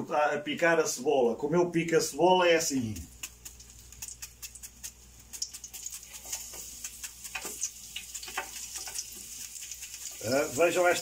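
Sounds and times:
oil sizzling: 2.6 - 11.0
crisp clicks and ticks: 3.0 - 10.7.

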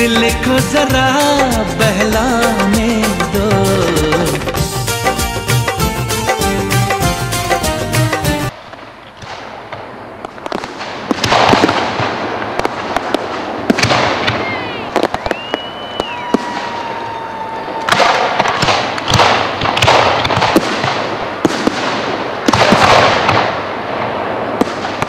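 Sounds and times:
fireworks bangs and crackling: 8.5 - 25.0
fireworks whistles: 13.8 - 18.8.

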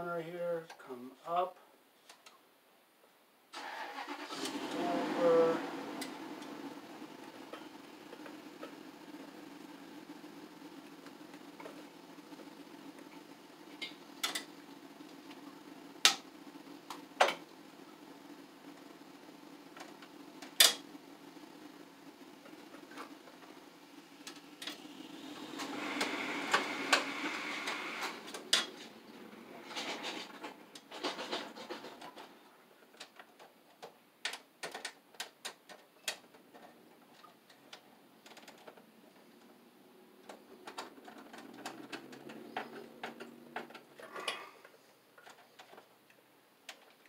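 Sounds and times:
rustling: 25.7 - 39.6.

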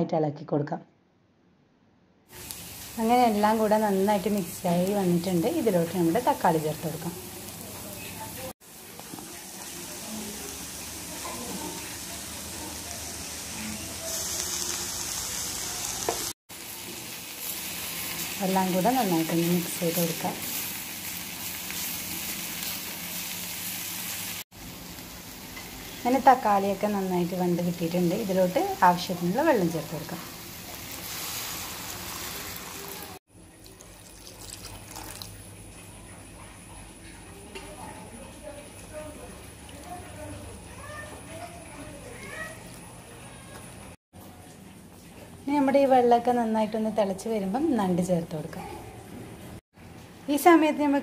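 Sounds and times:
faint crackles from pan: 2.3 - 26.2, 29.8 - 41.5
onions sizzling in hot oil: 2.3 - 33.2
water poured hissing into hot pan: 30.4 - 35.5.

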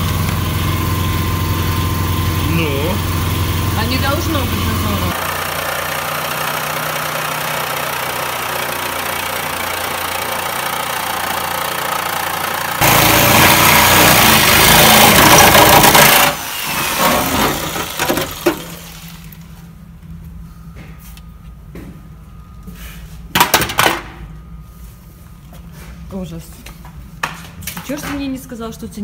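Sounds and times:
power cutting tool cutting steel: 2.0 - 19.3.

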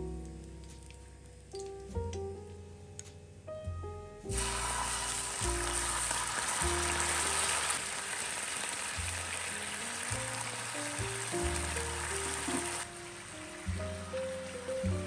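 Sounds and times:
meat sizzling on a grill pan: 4.3 - 12.8.

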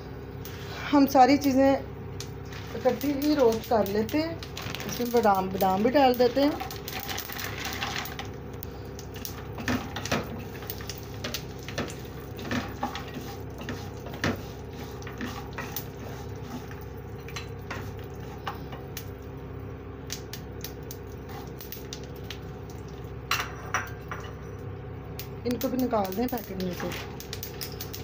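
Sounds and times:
steady low hum: 0.0 - 28.0
spatula scraping nuts in a pan: 12.4 - 16.9.

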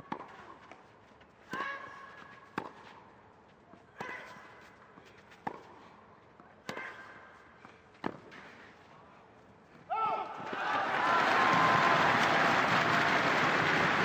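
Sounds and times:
tennis ball hit with racket: 1.4 - 3.0, 5.3 - 5.8, 6.6 - 7.2.

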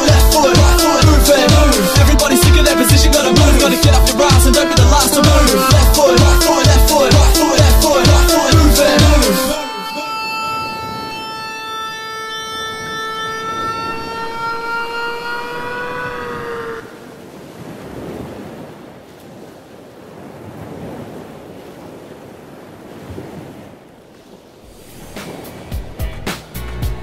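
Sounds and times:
high whine with overtones: 0.0 - 16.9, 24.7 - 25.2
small waves washing on beach: 16.9 - 25.8.

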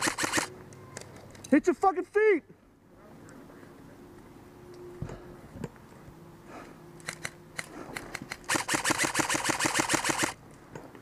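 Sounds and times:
airsoft gunfire clicks: 0.0 - 0.5, 7.0 - 10.4.

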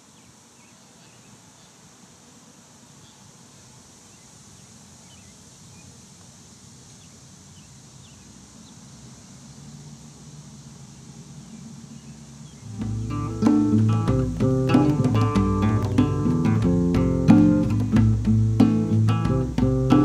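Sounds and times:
faint bird chirps: 0.0 - 1.9, 2.9 - 6.1, 6.9 - 10.3, 11.0 - 16.3
steady high hiss: 0.0 - 20.0.

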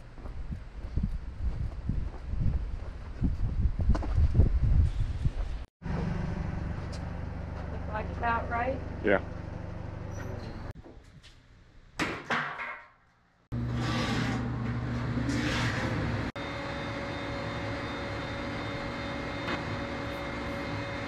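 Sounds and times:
machine humming: 13.5 - 21.0.

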